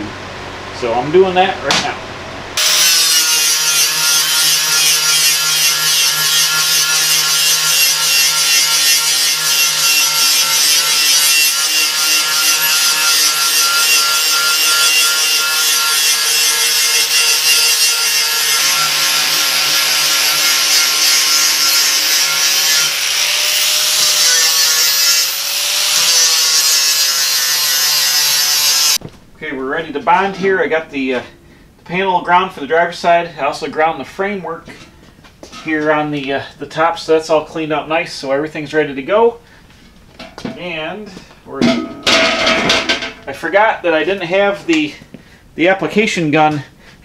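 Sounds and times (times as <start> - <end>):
angle grinder grinding metal: 2.6 - 29.0.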